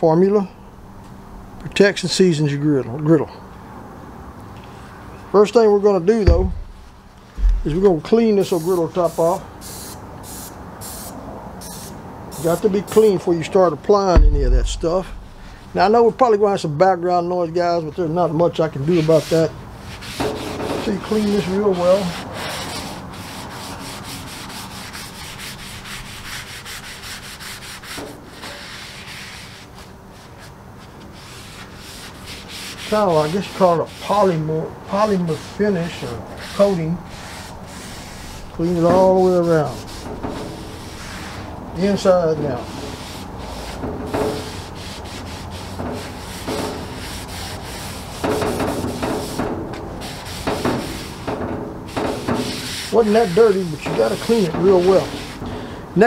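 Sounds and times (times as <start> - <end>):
cloth pad scrubbing steel griddle: 6.3 - 9.3, 14.1 - 15.6, 18.8 - 30.5, 31.1 - 51.3, 51.9 - 55.4.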